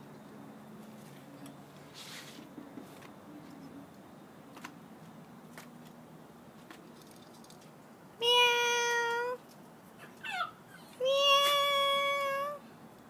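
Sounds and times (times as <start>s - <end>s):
cat meowing: 8.2s - 9.4s, 10.2s - 12.6s.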